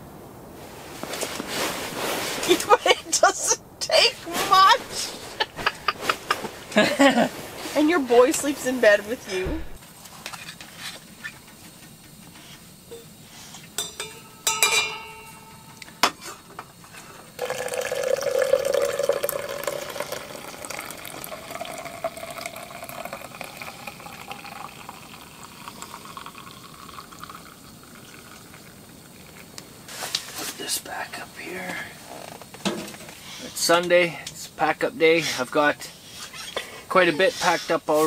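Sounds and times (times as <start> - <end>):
spoon clinking against tin and mug: 13.8 - 16.1
water pouring into a metal mug: 17.4 - 29.5.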